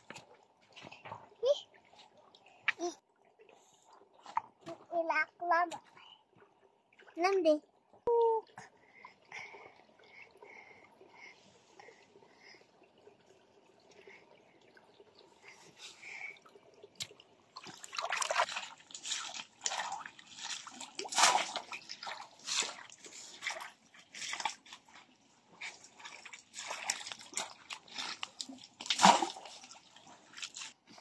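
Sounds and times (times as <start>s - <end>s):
water splashing in stream: 16.8s - 31.0s.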